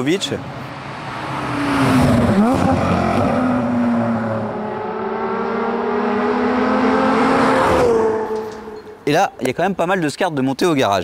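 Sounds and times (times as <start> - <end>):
sports car driving past: 0.5 - 9.0.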